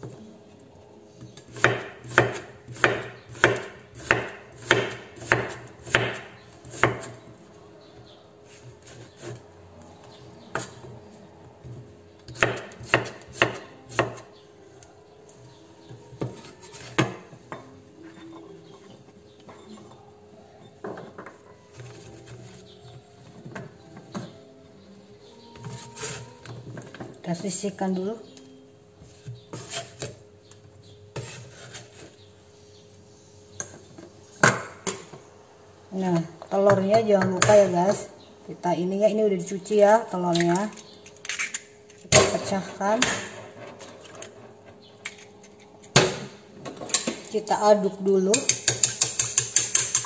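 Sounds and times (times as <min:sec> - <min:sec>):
knife chopping on wooden board: 0:01.5 - 0:07.1, 0:12.3 - 0:14.2, 0:48.4 - 0:50.0
cleaver scraping chopping board: 0:29.5 - 0:30.2, 0:31.2 - 0:32.1.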